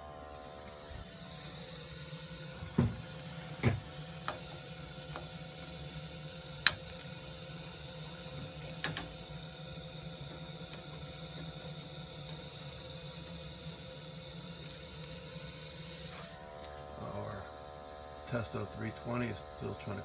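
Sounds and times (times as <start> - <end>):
gas boiler humming: 0.0 - 20.0
sharp clicks and knocks: 8.8 - 9.1.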